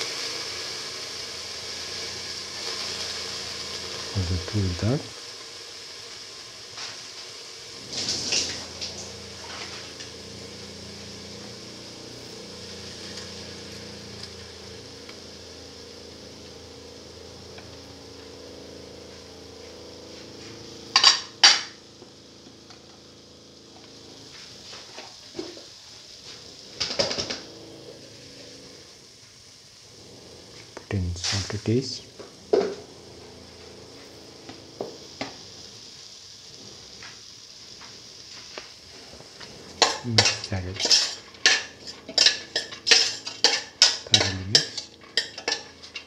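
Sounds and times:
oil sizzling in a pot: 0:00.0 - 0:46.0.

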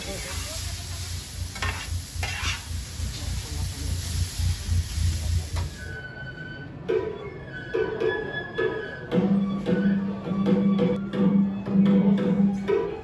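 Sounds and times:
noodles sizzling on a griddle: 0:00.0 - 0:05.9
spatula scraping griddle: 0:01.5 - 0:02.8
music: 0:05.8 - 0:13.0.

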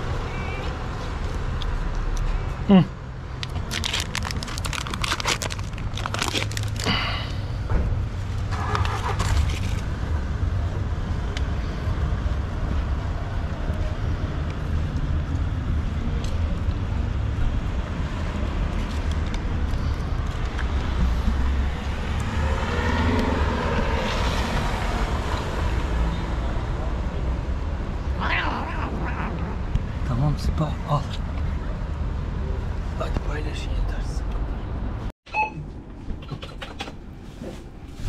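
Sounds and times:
low rumble of street traffic: 0:00.0 - 0:38.0
plastic packaging crinkling and tearing: 0:03.4 - 0:07.0.

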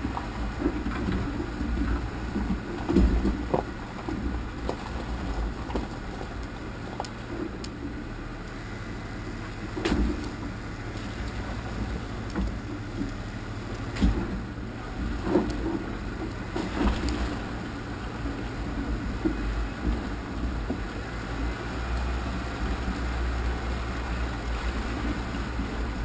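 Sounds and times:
engine and drivetrain rumble: 0:00.0 - 0:26.0
tires knocking on rocks: 0:00.0 - 0:26.0.

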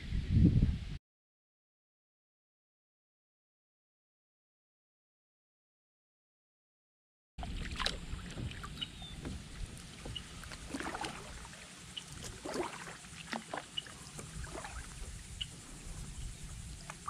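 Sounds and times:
wind rumble on microphone: 0:00.0 - 0:01.0, 0:07.4 - 0:11.4, 0:14.0 - 0:17.0
paddle dipping into water: 0:07.4 - 0:17.0
water splashes and drips: 0:07.4 - 0:17.0.

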